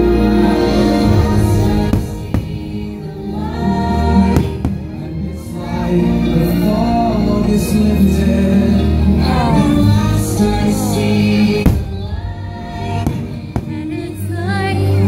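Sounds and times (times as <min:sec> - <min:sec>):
orchestral music with choir: 0:00.0 - 0:15.0
firework bangs: 0:01.0 - 0:02.9.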